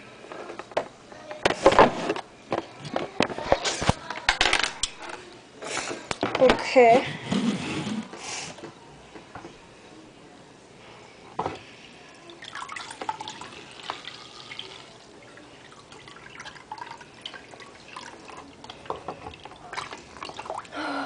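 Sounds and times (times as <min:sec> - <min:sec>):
water dripping into tank: 0:12.3 - 0:20.8.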